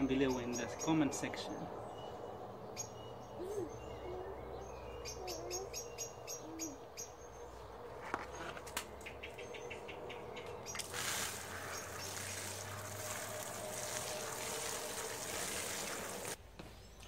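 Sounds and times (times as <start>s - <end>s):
dove cooing: 3.3s - 7.0s.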